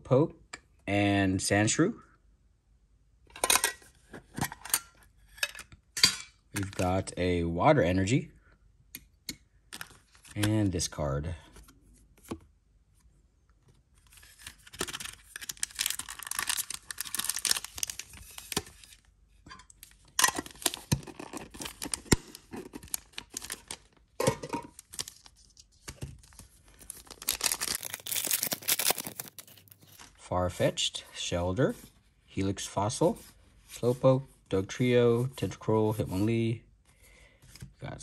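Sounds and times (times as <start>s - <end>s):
foil pack crinkling: 14.1s - 19.1s, 19.8s - 30.1s
foil wrapper tearing: 14.2s - 18.9s, 20.2s - 24.0s, 26.7s - 30.1s.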